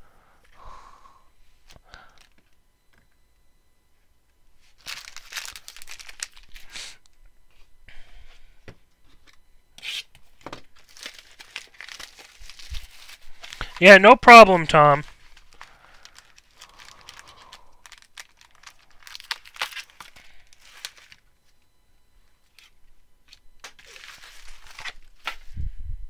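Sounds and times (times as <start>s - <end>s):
plastic wrapping tearing and crinkling: 4.8s - 6.7s, 10.8s - 13.8s, 15.1s - 21.2s, 23.3s - 25.5s.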